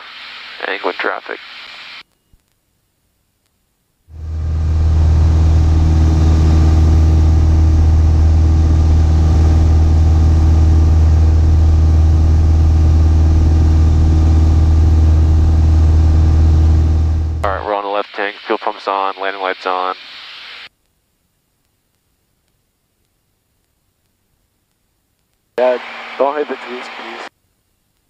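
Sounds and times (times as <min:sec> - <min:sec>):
airplane engine drone: 0:04.1 - 0:19.6, 0:25.6 - 0:27.3.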